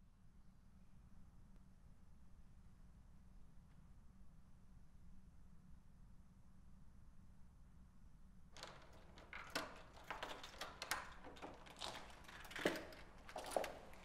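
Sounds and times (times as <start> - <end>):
keys and door lock rattling: 8.6 - 14.0.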